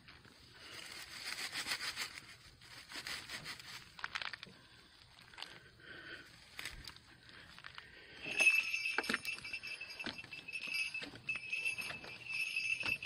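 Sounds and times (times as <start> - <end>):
dry leaves crackling and rustling: 0.6 - 5.3.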